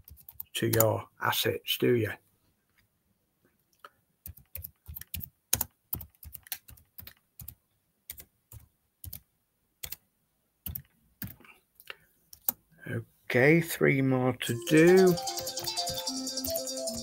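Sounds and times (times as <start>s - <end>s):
typing on computer keyboard: 0.0s - 0.9s, 4.2s - 9.2s, 10.6s - 11.4s, 14.6s - 17.0s.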